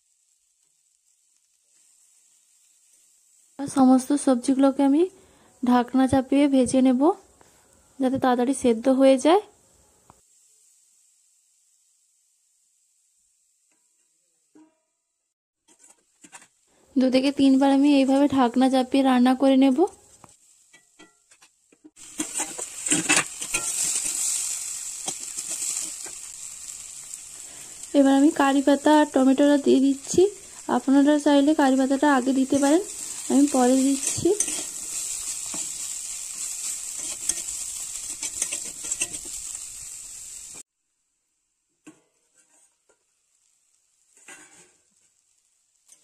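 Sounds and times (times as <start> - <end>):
vegetables sizzling in oil: 0.0 - 14.8, 15.6 - 40.7, 42.2 - 46.0
metal spatula scraping pan: 15.6 - 16.6, 20.7 - 26.2, 32.4 - 39.6, 44.1 - 44.9.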